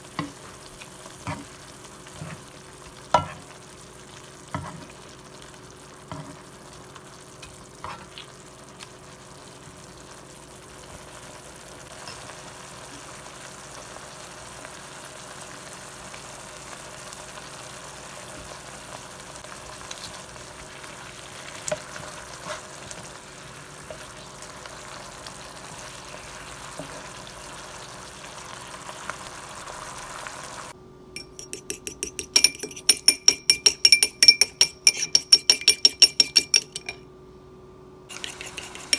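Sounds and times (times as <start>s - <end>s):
sauce simmering in a pan: 0.0s - 30.8s
eggs beaten in a bowl: 31.2s - 37.0s, 38.1s - 38.9s
utensil clicking against pan: 31.2s - 37.0s, 38.1s - 38.9s.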